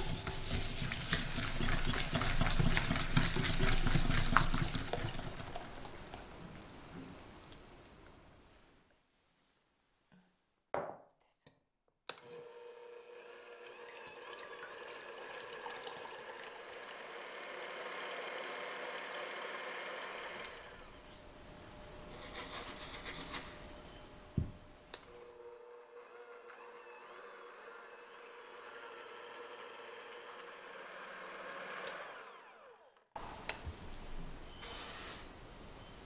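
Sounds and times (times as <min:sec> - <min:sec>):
electric hand mixer whipping: 0:00.0 - 0:05.7, 0:12.3 - 0:21.0, 0:25.3 - 0:32.9.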